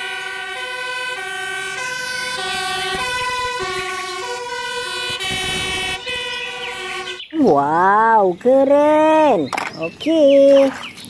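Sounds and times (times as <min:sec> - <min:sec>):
toy two-tone siren: 0:00.0 - 0:07.4.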